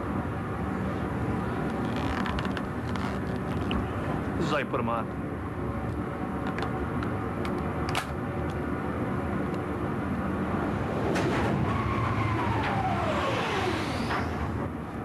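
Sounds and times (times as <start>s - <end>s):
machinery hum: 0.0s - 15.0s
whistling tone gliding down: 11.2s - 14.6s.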